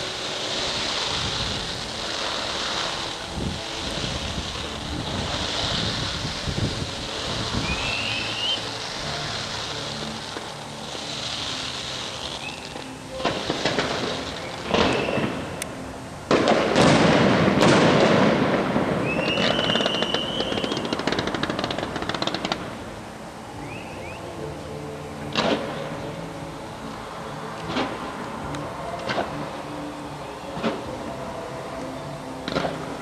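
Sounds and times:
firework whistle: 0.0 - 22.7, 23.5 - 24.5
fireworks crackling: 0.0 - 33.0
firework shells bursting: 16.3 - 22.7.

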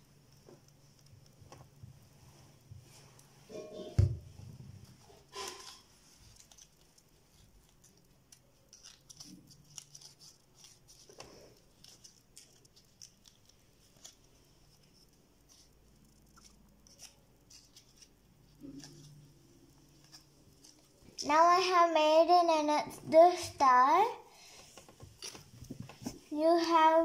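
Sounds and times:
paper rustling and crinkling: 4.5 - 21.7, 24.4 - 26.9.

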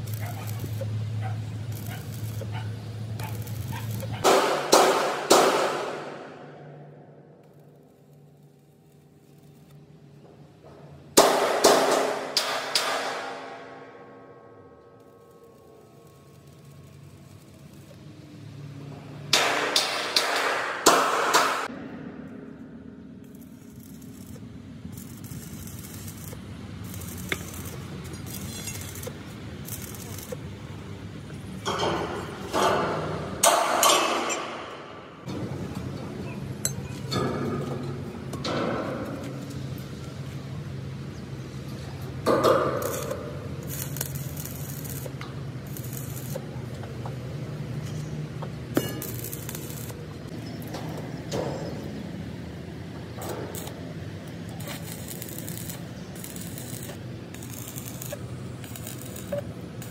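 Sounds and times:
sharp metallic clink: 48.8 - 49.7
hissing bursts: 54.6 - 59.9.

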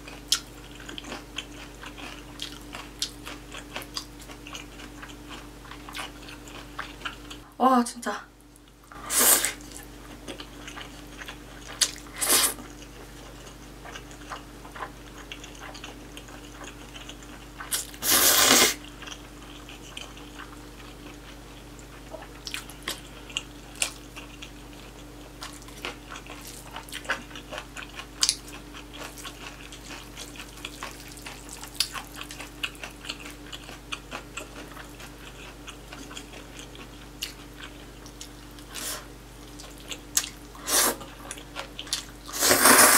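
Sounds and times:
wet chewing: 0.1 - 7.4, 9.5 - 18.0, 18.8 - 42.9
slurping noodles: 12.2 - 12.6, 17.7 - 18.8, 42.3 - 42.9.

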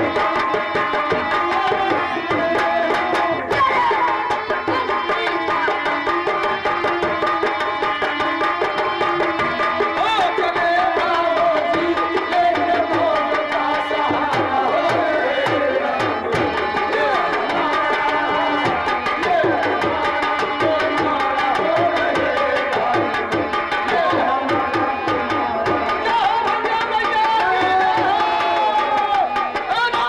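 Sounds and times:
fast hand drum rhythm: 0.0 - 30.0.

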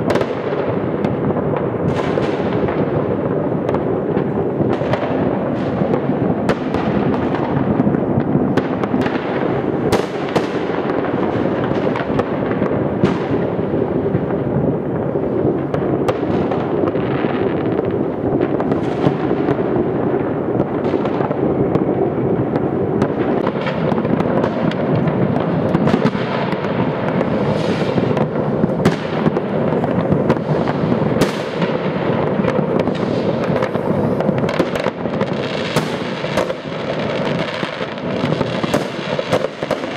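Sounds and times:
distant fireworks booms and crackles: 0.0 - 39.9
sharp firecracker bangs: 0.0 - 39.9.

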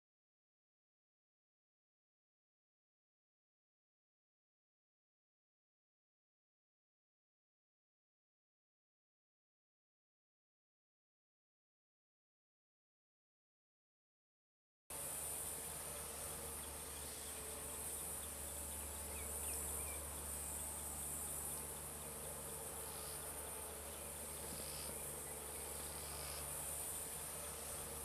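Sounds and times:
insects chorus: 14.9 - 28.0.

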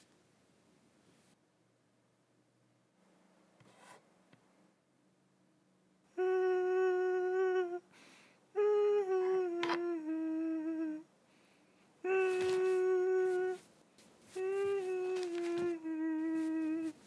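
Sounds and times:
man humming: 6.1 - 7.9, 8.5 - 11.1, 12.0 - 13.7, 14.3 - 17.0.

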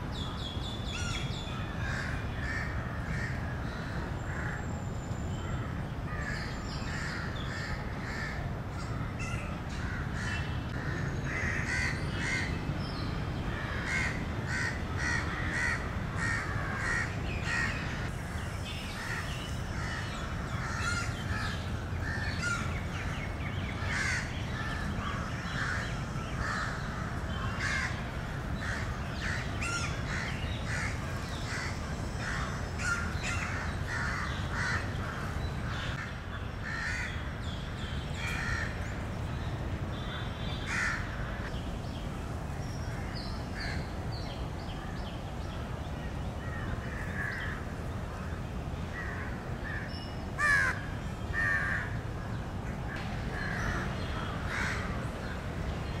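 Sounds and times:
crows cawing: 6.1 - 12.5, 13.5 - 17.9, 19.0 - 22.7, 23.9 - 28.0, 28.6 - 37.2, 40.7 - 41.5, 49.0 - 52.0, 53.3 - 55.0.

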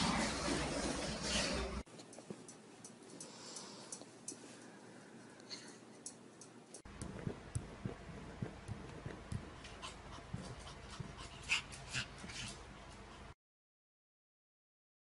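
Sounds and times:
puppy panting: 9.0 - 13.4.

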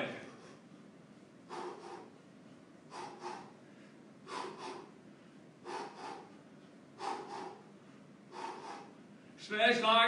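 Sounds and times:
man's short sharp breaths: 1.5 - 2.3, 2.9 - 9.4.

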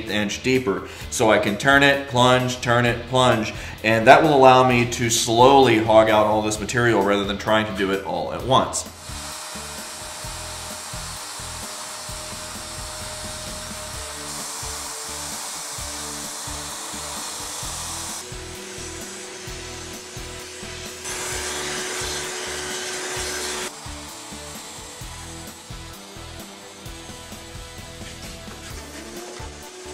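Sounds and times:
router cutting into wood: 8.8 - 29.9.

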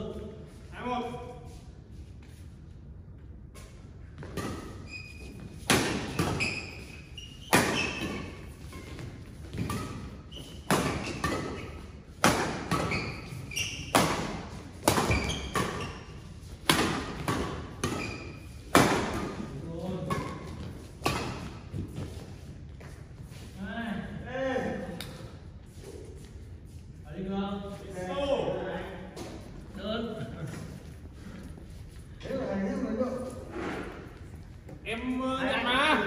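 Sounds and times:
sneakers squeaking on court: 4.0 - 23.4.

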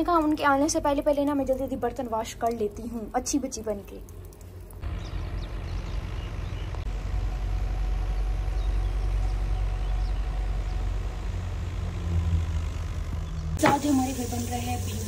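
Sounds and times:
thresher engine drone: 4.1 - 15.0.

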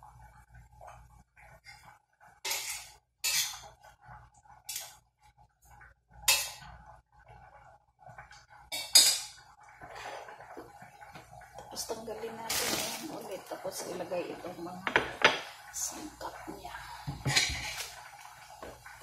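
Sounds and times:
prawns frying in a pan: 1.2 - 7.2, 7.8 - 19.0.

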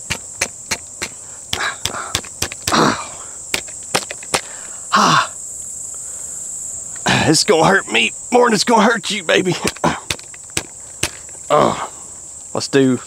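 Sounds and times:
high insect trill: 0.0 - 13.0
rifle clicks and knocks: 1.8 - 2.7, 3.6 - 4.5.

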